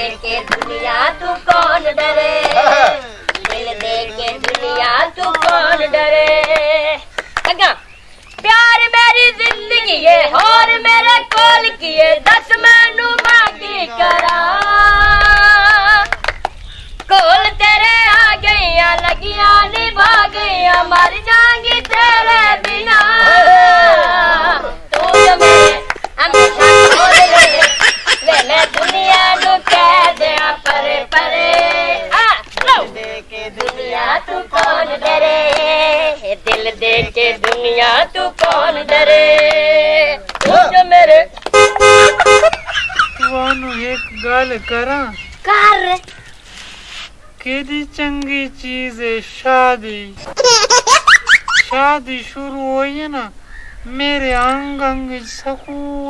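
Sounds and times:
people singing: 0.0 - 7.1, 8.4 - 16.2, 17.1 - 41.6
hands clapping: 0.4 - 0.8, 1.5 - 7.7, 11.3 - 11.5, 13.1 - 17.1, 19.8 - 23.2, 24.9 - 25.1, 25.9 - 26.2, 27.6 - 31.8, 32.4 - 33.8, 34.6 - 35.8, 36.5 - 37.7, 38.4 - 39.6, 40.3 - 40.6, 42.4 - 42.7.

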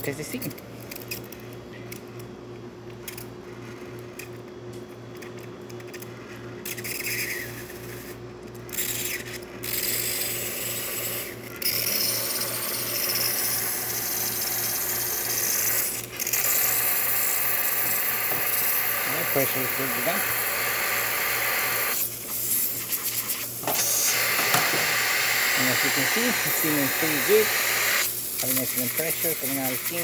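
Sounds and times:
steam wand hissing: 14.7 - 22.5, 23.6 - 30.0.

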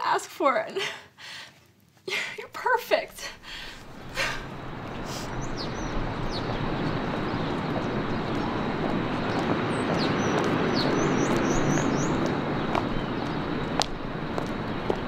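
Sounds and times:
traffic rumble: 2.4 - 15.0
small birds chirping: 3.0 - 15.0.

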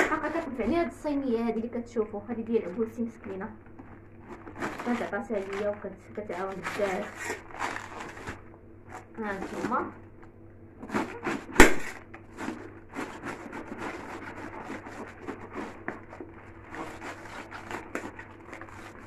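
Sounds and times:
knife crunching through cabbage: 3.7 - 9.9, 10.8 - 19.0.

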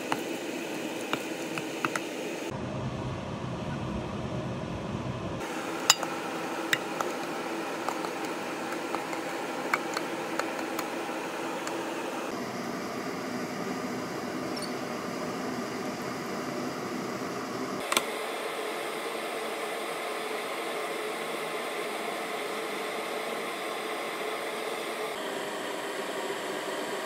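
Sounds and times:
steady background hum: 0.0 - 25.2
utensil clinking on pot and glass: 5.8 - 7.2.

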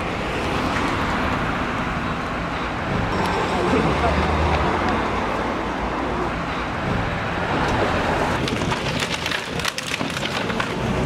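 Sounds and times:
wall cracking and crumbling: 8.4 - 11.0.

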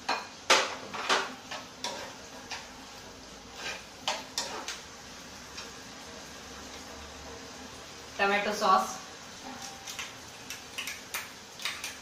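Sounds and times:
spatula scraping frying pan: 0.0 - 5.8.

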